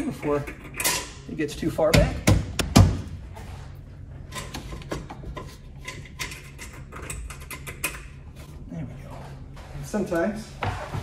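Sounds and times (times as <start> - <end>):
sharp knocks: 1.9 - 3.1.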